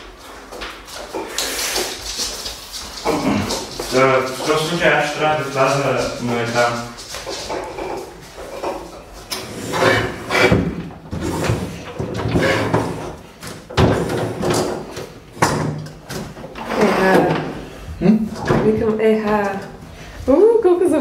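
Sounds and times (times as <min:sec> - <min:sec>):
refrigerator scraping and bumping: 0:07.5 - 0:17.6.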